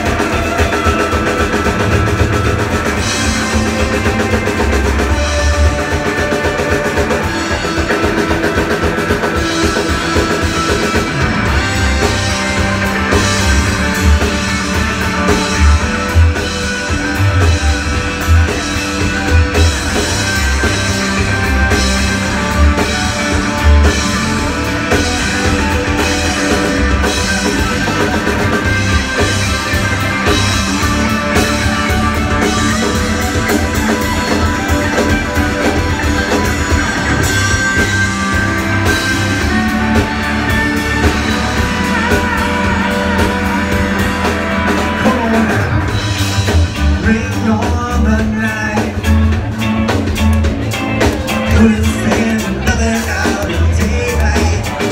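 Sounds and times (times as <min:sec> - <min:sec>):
live rock band playing loudly: 0:00.0 - 0:54.9.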